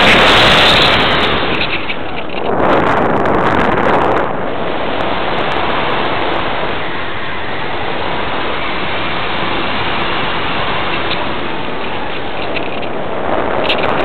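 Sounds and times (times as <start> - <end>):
airflow hiss over microphone: 0.0 - 14.0.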